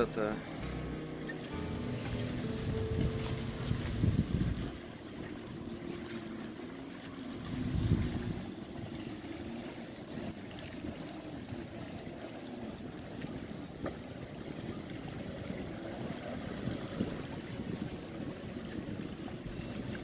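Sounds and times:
distant jet ski engine droning: 0.0s - 20.0s.

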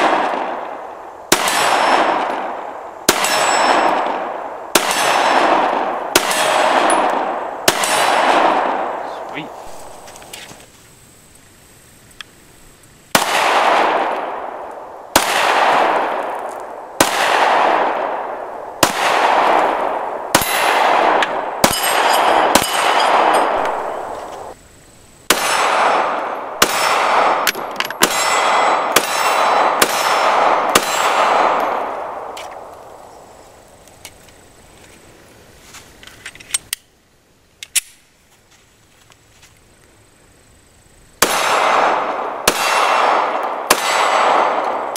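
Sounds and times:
pistol shots: 0.0s - 10.1s, 13.1s - 24.6s, 25.3s - 32.7s, 41.2s - 44.9s
pistol handling clicks: 37.6s - 38.0s.

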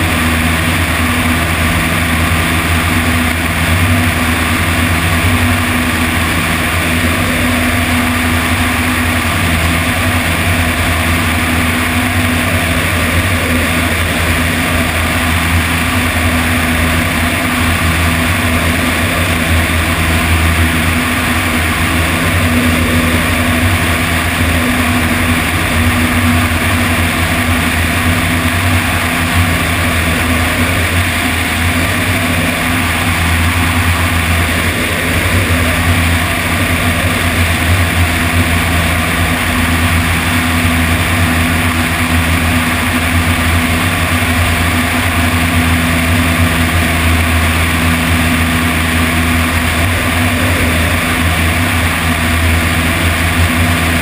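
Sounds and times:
light aircraft engine droning: 0.0s - 54.0s
wind rush on microphone: 0.0s - 54.0s.

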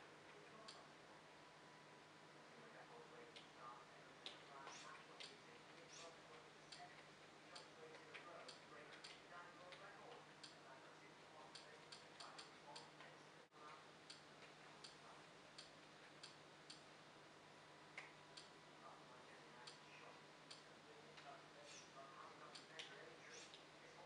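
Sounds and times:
low steady hum: 0.0s - 24.0s
faint clicks: 3.2s - 3.6s, 4.2s - 10.6s, 11.4s - 16.9s, 19.6s - 23.7s.

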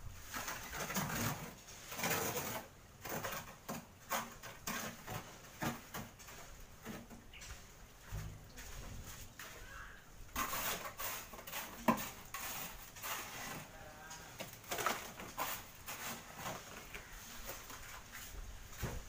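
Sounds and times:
trowel scraping wet mortar: 0.2s - 6.4s, 10.3s - 18.4s.

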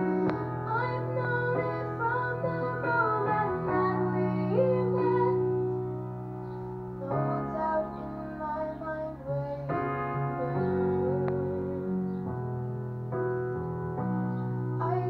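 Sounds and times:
piano chords: 0.0s - 15.0s
woman singing into microphone: 0.3s - 5.6s, 7.0s - 12.1s, 14.8s - 15.0s.

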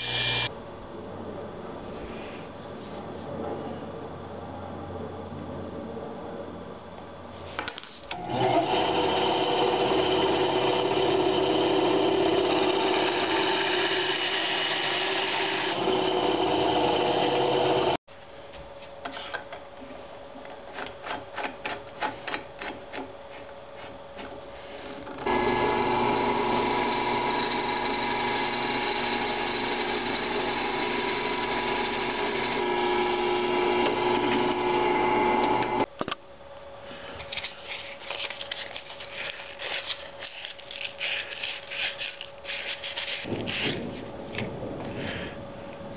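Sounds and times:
drill press drilling wood: 0.0s - 0.5s, 8.1s - 18.0s, 25.2s - 35.8s.

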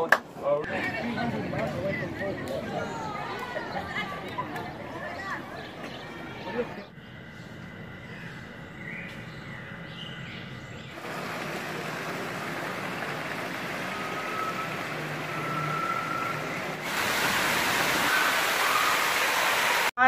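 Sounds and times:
waterfalls splashing into pools: 11.0s - 20.0s.

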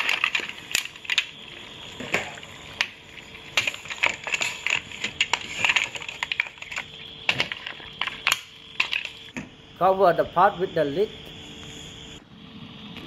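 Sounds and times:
mussel shells clacking in a pot: 0.0s - 9.3s
boiling liquid hissing: 0.0s - 13.0s.

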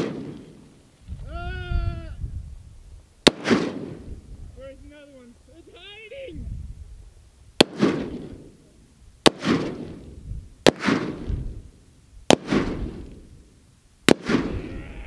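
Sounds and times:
rifle shots with echo: 0.0s - 0.8s, 3.2s - 4.2s, 7.6s - 11.7s, 12.3s - 13.4s, 14.1s - 14.6s.

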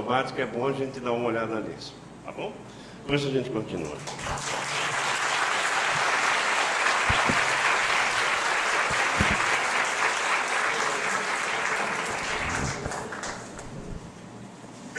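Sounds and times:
audience applauding: 4.0s - 14.1s
dull thumps: 7.0s - 7.9s, 8.9s - 9.5s.

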